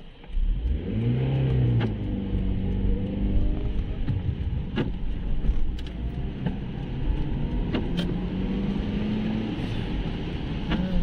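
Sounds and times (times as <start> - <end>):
sharp clicks: 0.0 - 8.4
car engine and tyres rumbling: 0.0 - 11.0.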